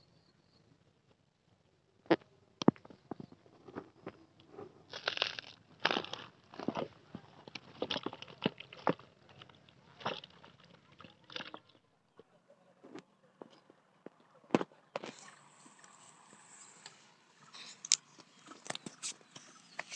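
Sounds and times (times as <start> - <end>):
dry plant sheaths crackling: 3.9 - 11.8.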